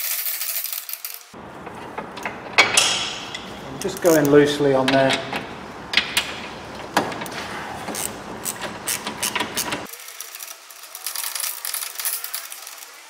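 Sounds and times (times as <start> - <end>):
ratchet spanner clicking: 7.9 - 12.9.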